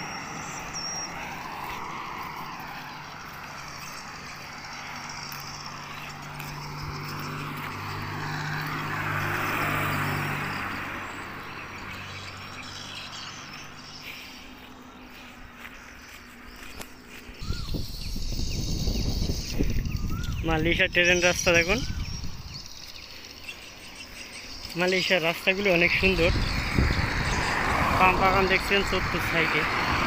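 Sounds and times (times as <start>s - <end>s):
car driving past: 0.0s - 16.6s, 26.4s - 30.0s.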